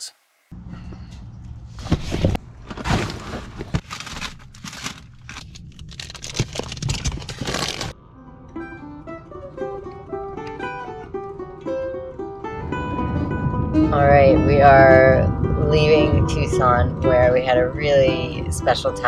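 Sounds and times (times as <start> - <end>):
bags and gear crinkling: 1.9 - 7.9
plucked acoustic guitar music: 8.2 - 19.0.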